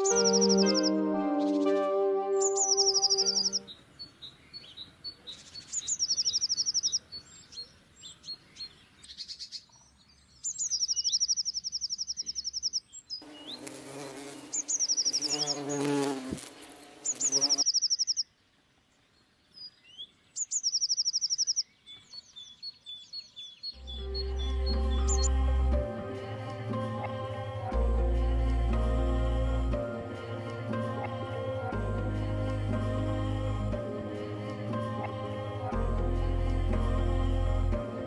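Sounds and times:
songbird trilling and chirping: 0.0 - 1.8, 2.4 - 16.1, 16.8 - 18.3, 19.4 - 25.4.

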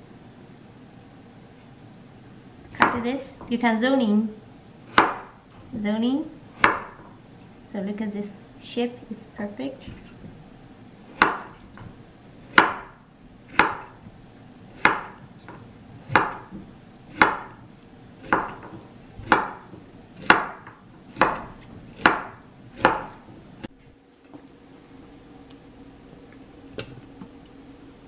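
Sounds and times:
cleaver chopping on wooden board: 4.9 - 5.3, 6.6 - 7.0, 11.2 - 11.6, 12.5 - 14.0, 14.8 - 15.2, 16.1 - 16.6, 17.2 - 17.6, 18.2 - 23.2.

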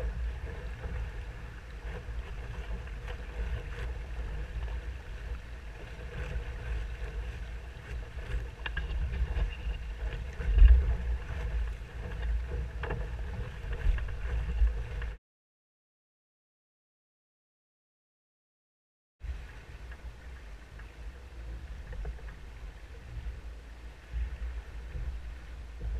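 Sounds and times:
water rushing along hull: 0.0 - 15.2, 19.2 - 25.9
wind buffeting microphone: 0.0 - 15.2.

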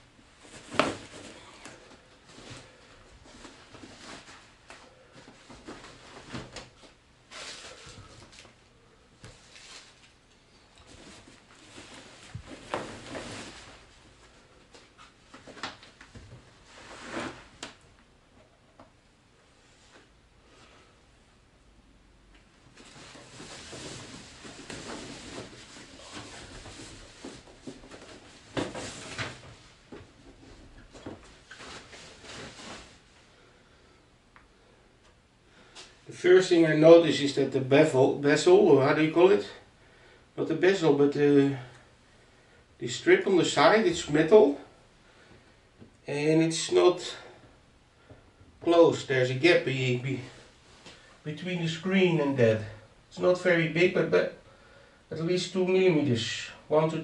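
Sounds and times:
plastic wrap rustling: 9.2 - 15.9, 22.8 - 33.2.

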